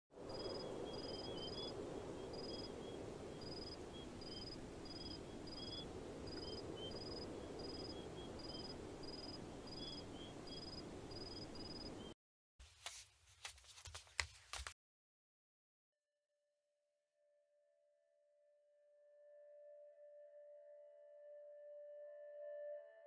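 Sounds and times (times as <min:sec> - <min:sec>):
crickets chirping: 0:00.2 - 0:12.1
steady low hiss: 0:00.2 - 0:12.1.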